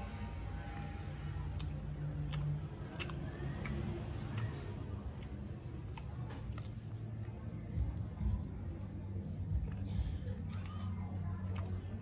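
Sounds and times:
person chewing pastry: 0.0s - 12.0s
steady low hum: 0.0s - 12.0s
wet mouth clicks and smacks: 1.4s - 7.9s.

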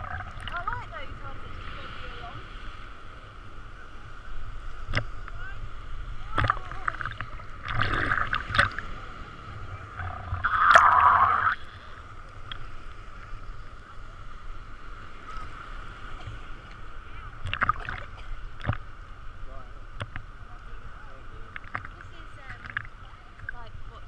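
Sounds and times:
sea water sloshing and splashing: 0.0s - 24.0s.

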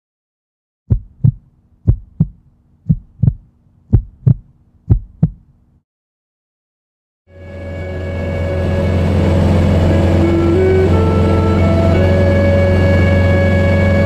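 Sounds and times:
heartbeat lub-dub: 0.9s - 5.6s.

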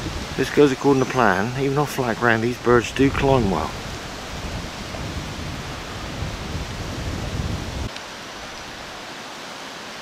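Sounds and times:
wind buffeting microphone: 0.0s - 7.9s
steady hiss: 0.0s - 10.0s.

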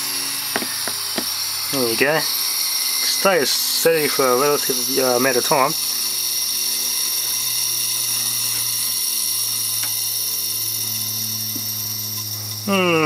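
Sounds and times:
compressed air hissing: 0.0s - 13.0s
hard drive high-pitched whine: 0.0s - 13.0s.

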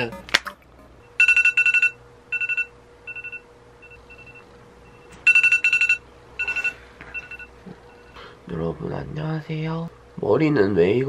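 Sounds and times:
alarm clock ringing: 0.0s - 3.4s, 5.3s - 7.5s.

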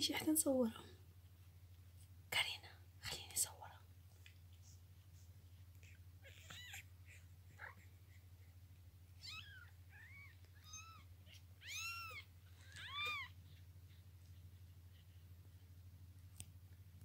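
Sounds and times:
faint steady hum: 0.0s - 17.0s
cat meowing: 6.2s - 7.2s, 9.2s - 13.4s.

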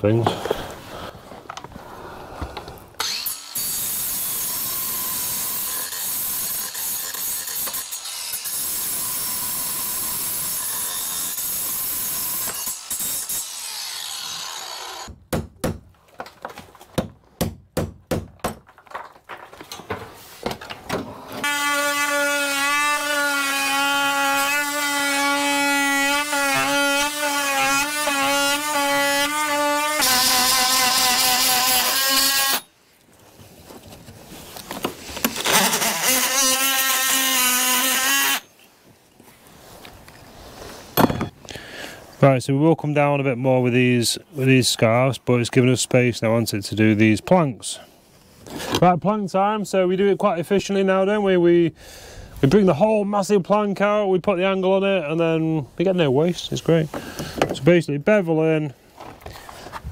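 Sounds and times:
power tool cutting: 3.0s - 15.2s, 21.4s - 32.7s, 35.2s - 38.5s
sharp knocks: 15.1s - 15.9s
power tool whine: 35.2s - 38.4s.

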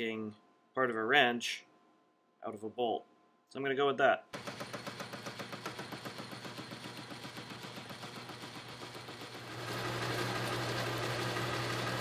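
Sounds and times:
lathe rapid ticking: 4.4s - 12.0s.

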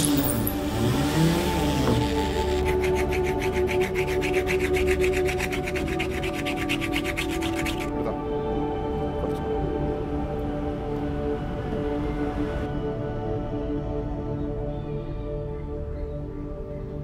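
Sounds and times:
angle grinder rasping on metal tube: 0.0s - 7.9s
background music: 0.0s - 17.0s.

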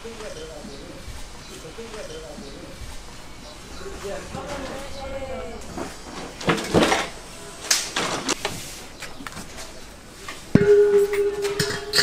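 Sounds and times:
steady ringing tone: 0.0s - 7.7s, 10.6s - 12.0s.

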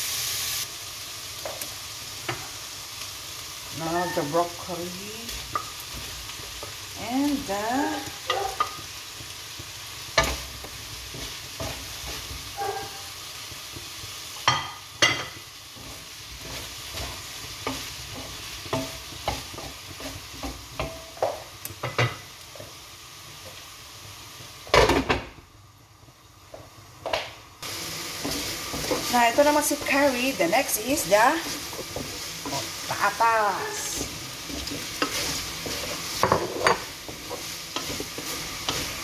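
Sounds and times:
vegetables sizzling in a wok: 0.0s - 39.0s
wooden spatula scraping a pan: 3.8s - 22.8s, 27.8s - 39.0s.

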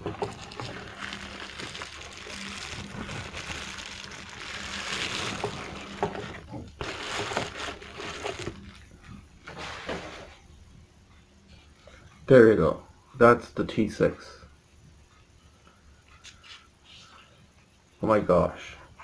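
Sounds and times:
bubble wrap crinkling: 0.0s - 10.3s.

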